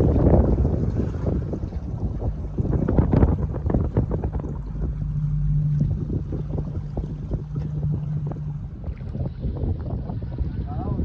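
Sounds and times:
low motor hum: 0.0 - 11.0
water rumbling against hull: 0.0 - 11.0
wind buffeting microphone: 0.0 - 11.0.

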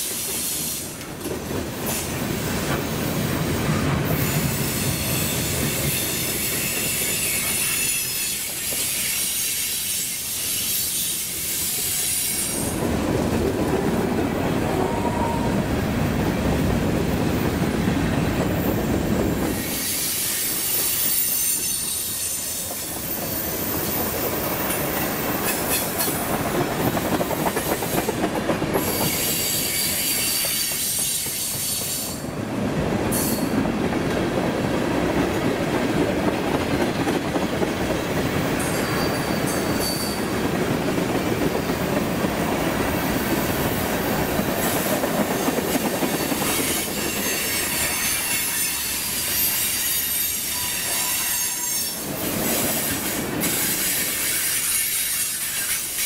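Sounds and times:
freight train wheels rumbling: 0.0 - 56.0
high-pitched wheel squeal: 38.6 - 40.3.

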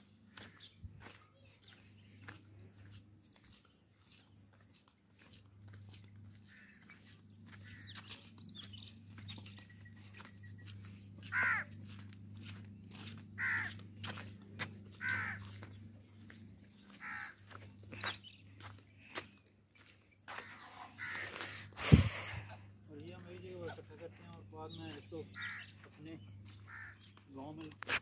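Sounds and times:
footsteps on brick path: 0.0 - 21.7, 22.9 - 28.0
small birds chirping: 0.0 - 28.0
crows cawing: 6.3 - 8.1, 10.9 - 18.2, 20.3 - 21.8, 24.0 - 27.2.

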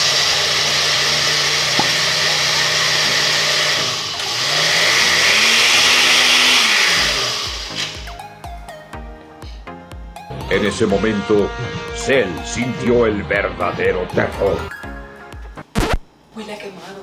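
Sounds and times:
blender grinding oats: 0.0 - 8.2.

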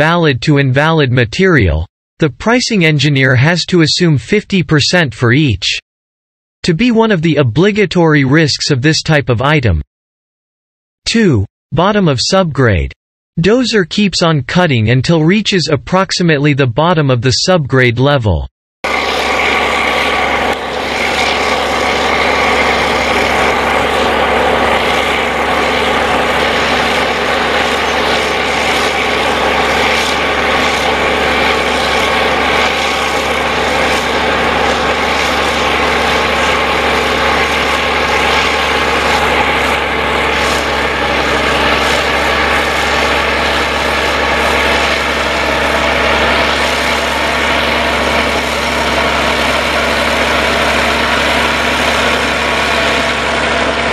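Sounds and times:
blade pushing sandy soil: 18.9 - 53.9
bulldozer diesel engine under load: 18.9 - 53.9.

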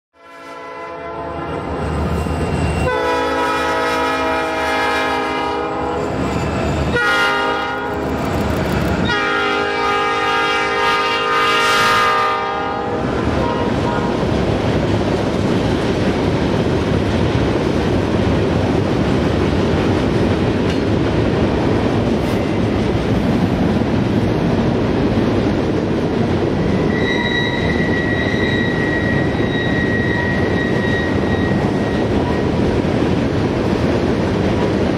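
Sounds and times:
locomotive air horn blasts: 0.2 - 1.6, 2.8 - 6.0, 6.9 - 8.1, 9.0 - 14.2
high wheel squeal: 1.4 - 3.2, 5.7 - 7.0, 26.7 - 32.5
freight cars rumbling and clattering: 7.9 - 9.1, 13.0 - 34.9.

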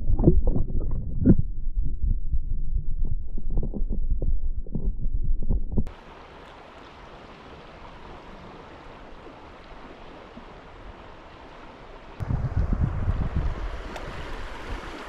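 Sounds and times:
underwater thumping and rumbling: 0.0 - 5.9
shallow creek flowing: 5.9 - 15.0.

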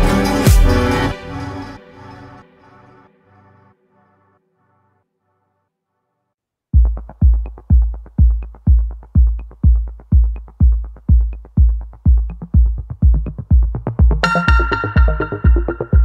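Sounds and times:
heavy kick drum beat: 0.0 - 0.8, 6.8 - 16.0
electronic music: 0.0 - 4.3, 6.8 - 16.0.

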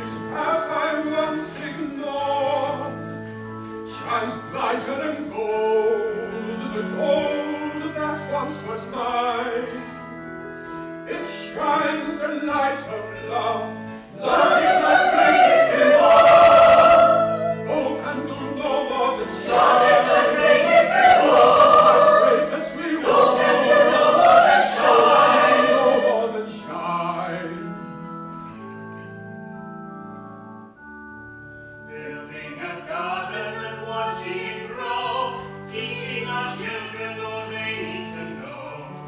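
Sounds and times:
instrumental accompaniment chords: 0.0 - 39.0
chorus singing loudly: 14.1 - 26.5.

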